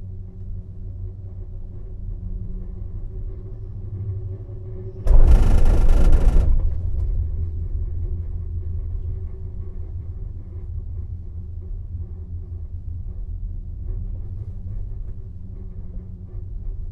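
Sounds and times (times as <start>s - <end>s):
gondola cabin low rumble: 0.0s - 16.9s.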